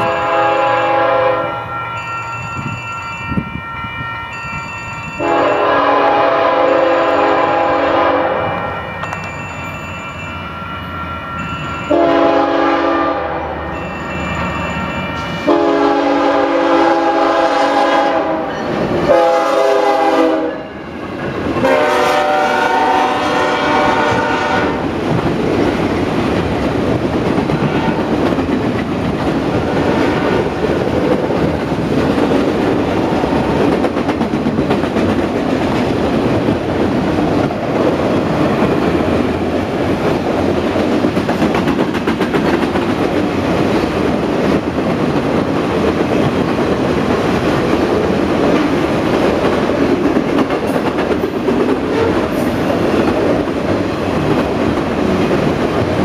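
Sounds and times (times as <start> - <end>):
locomotive air horn blasts: 0.0 - 1.7, 5.2 - 8.7, 11.9 - 13.6, 15.4 - 20.8, 21.6 - 24.9, 27.6 - 28.1
train wheels clattering on rails: 21.0 - 56.0.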